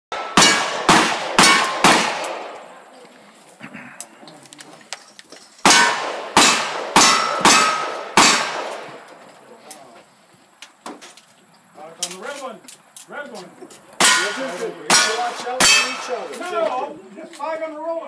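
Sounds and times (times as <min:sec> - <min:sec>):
metallic ring of steel targets: 0:00.1 - 0:02.0, 0:05.7 - 0:08.6, 0:14.0 - 0:16.3
gunshots: 0:00.1 - 0:02.8, 0:05.6 - 0:09.1, 0:14.0 - 0:16.4.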